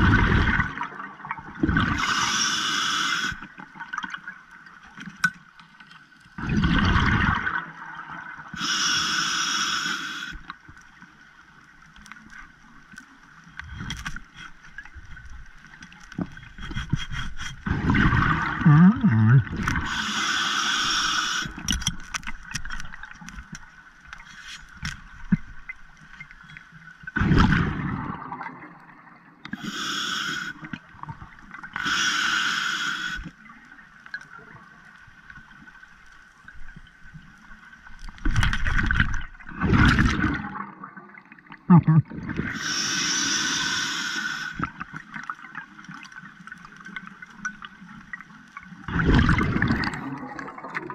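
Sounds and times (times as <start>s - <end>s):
exhaled air bubbling underwater: 0.0s - 4.8s, 6.3s - 10.7s, 15.6s - 23.3s, 27.1s - 34.8s, 38.1s - 50.9s
hissing regulator breath: 2.0s - 3.4s, 8.6s - 10.4s, 19.8s - 21.7s, 29.5s - 30.7s, 31.8s - 33.3s, 42.5s - 44.7s
faint clicks and scrapes: 3.3s - 7.3s, 10.3s - 18.1s, 20.8s - 27.2s, 33.1s - 40.4s, 44.5s - 50.9s.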